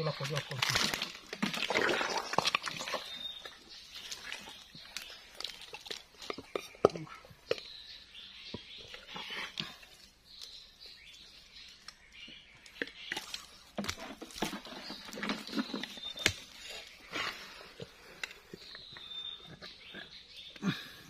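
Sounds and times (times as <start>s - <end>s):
rustling of twigs and leaves: 0.0s - 6.7s, 8.7s - 19.5s
squelches in wet mud: 0.0s - 21.0s
twigs snapping: 0.2s - 3.5s.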